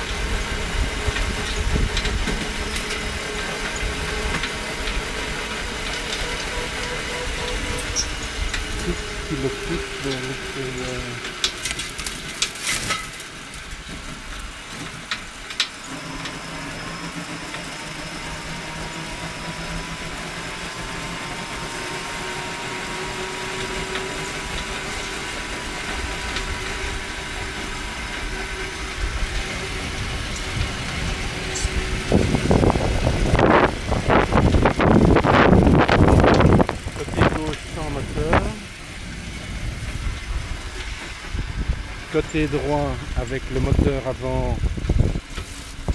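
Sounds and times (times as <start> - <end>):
wind buffeting microphone: 0.0 - 11.4, 23.1 - 45.9
faint motor whine: 0.0 - 45.9
rail vehicle rolling on track: 0.0 - 45.9.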